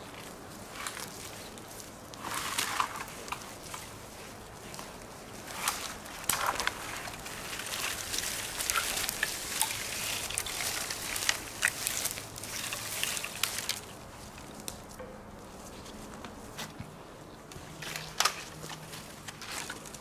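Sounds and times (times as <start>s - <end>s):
pole scraping through brush: 2.2s - 14.0s.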